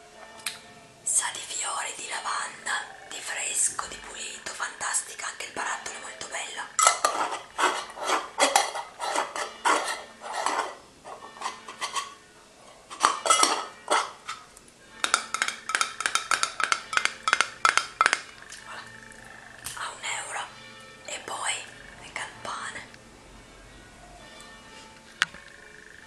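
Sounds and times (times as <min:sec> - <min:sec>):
fingernails tapping on glass jar: 0:15.0 - 0:18.3.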